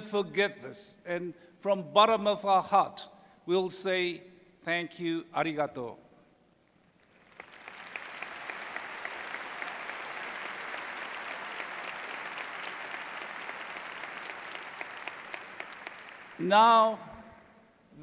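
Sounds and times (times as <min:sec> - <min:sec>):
large audience applauding: 0:07.0 - 0:16.5.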